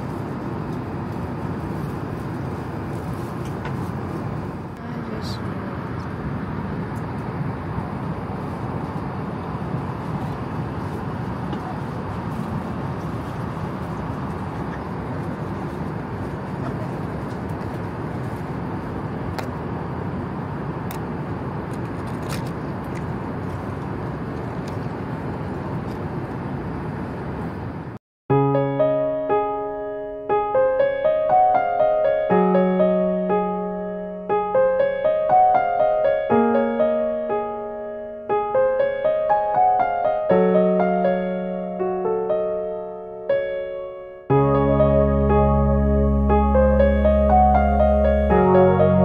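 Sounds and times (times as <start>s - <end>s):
airliner cabin engine rush: 0.0s - 28.0s.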